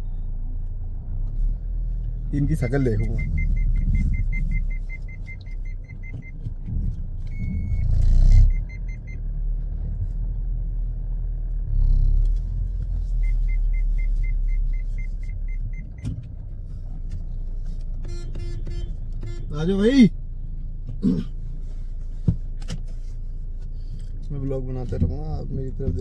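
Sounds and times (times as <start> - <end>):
car engine idling: 0.0 - 26.0
long single beep: 2.8 - 6.3, 7.3 - 9.2.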